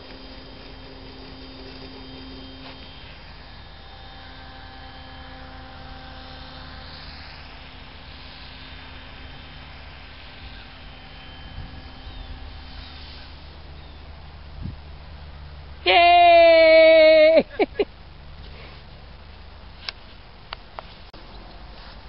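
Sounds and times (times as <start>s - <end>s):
model plane motor humming: 0.0s - 15.8s.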